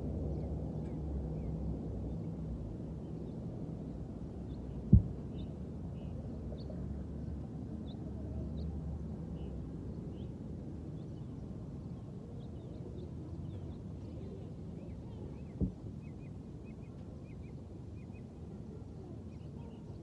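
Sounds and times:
steady low rumble: 0.0s - 7.2s.

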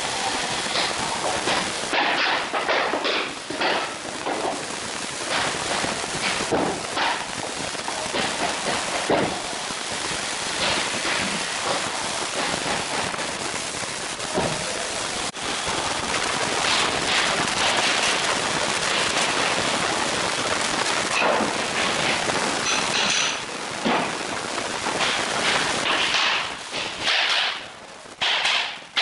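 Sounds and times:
steady loud hiss: 0.0s - 29.0s
floor planks knocking and scraping: 0.6s - 9.6s, 10.6s - 13.3s, 14.4s - 14.7s, 16.6s - 19.8s, 21.2s - 24.2s, 24.9s - 29.0s.

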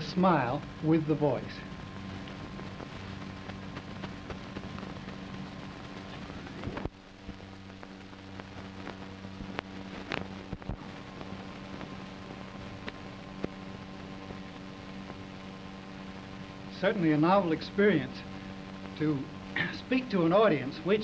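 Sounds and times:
film soundtrack hiss: 0.0s - 21.0s
low hum: 0.0s - 21.0s
clicks and pops: 1.9s - 13.6s.

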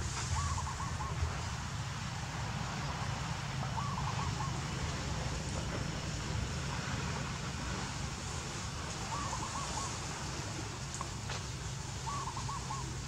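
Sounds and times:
bird warbling call: 0.3s - 1.2s, 3.8s - 4.6s, 9.0s - 10.0s, 12.0s - 13.0s.

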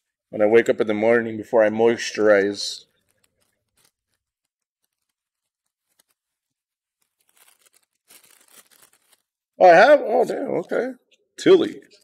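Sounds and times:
cards being handled: 2.8s - 9.5s
foil wrapper crinkling and tearing: 2.8s - 9.6s.

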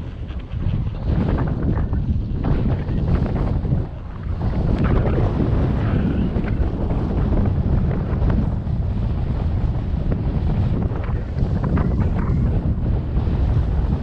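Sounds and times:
wind buffeting microphone: 0.0s - 14.0s.

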